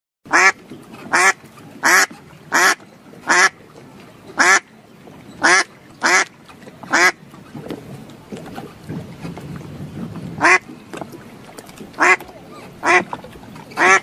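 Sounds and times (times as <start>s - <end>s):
duck quacking: 0.3s - 3.6s, 4.4s - 4.6s, 5.4s - 6.3s, 6.9s - 7.2s, 10.4s - 10.6s, 12.0s - 12.2s, 12.8s - 13.1s, 13.8s - 14.0s.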